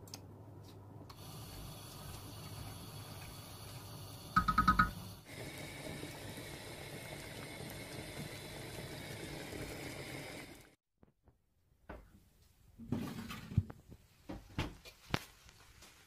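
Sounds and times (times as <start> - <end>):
syrup boiling in a pot: 1.1 - 10.8.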